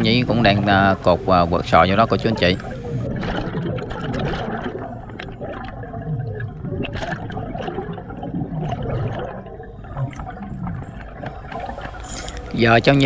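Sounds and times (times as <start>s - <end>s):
underwater breathing bubbles: 0.8s - 12.6s
small clicks: 10.9s - 12.6s.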